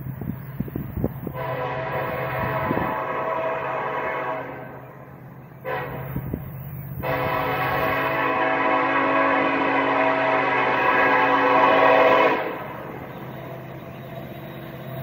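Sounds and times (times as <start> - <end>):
locomotive air horn blasts: 1.2 - 4.9, 5.6 - 6.4, 7.0 - 13.0.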